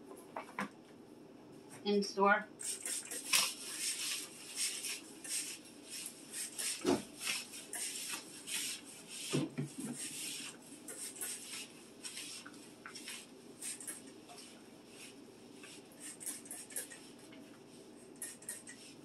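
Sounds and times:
mop swishing on wood floor: 0:02.6 - 0:17.4.

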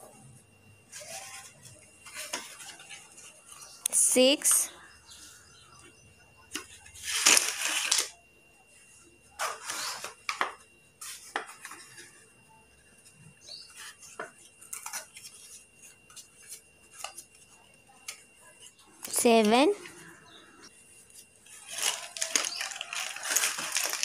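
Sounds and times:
slate pencils clattering: 0:21.5 - 0:24.0.

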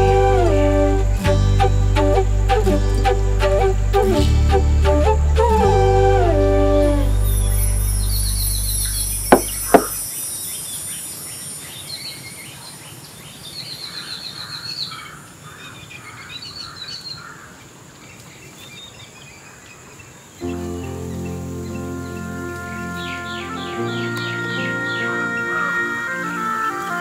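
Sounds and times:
birds chirping: 0:07.3 - 0:17.5, 0:18.1 - 0:26.6
high insect hiss: 0:08.0 - 0:12.7
low music drone: 0:20.4 - 0:26.8.

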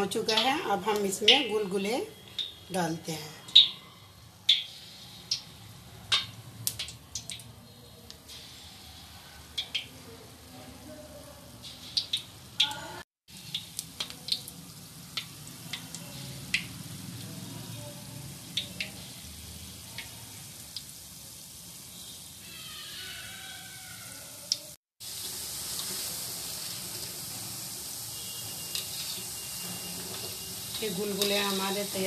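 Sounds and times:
batter sizzling in hot oil: 0:00.0 - 0:32.0
oil popping and crackling: 0:04.5 - 0:08.2, 0:09.6 - 0:10.0, 0:11.7 - 0:17.7, 0:18.4 - 0:22.2, 0:24.5 - 0:32.0.

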